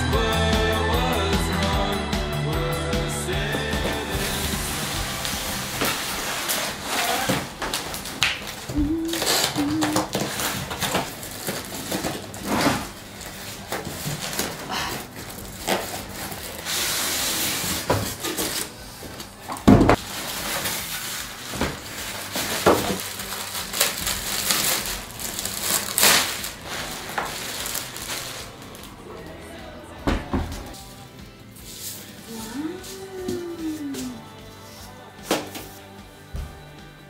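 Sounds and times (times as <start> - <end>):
cardboard and foam scraping: 3.5 - 28.9
rustling: 3.8 - 29.2
plastic bag crinkling: 4.0 - 18.8, 19.9 - 29.2.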